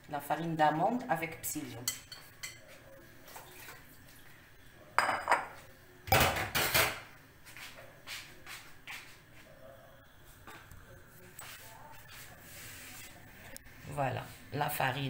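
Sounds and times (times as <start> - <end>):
dishes and utensils clattering: 1.8 - 3.8, 5.0 - 7.1.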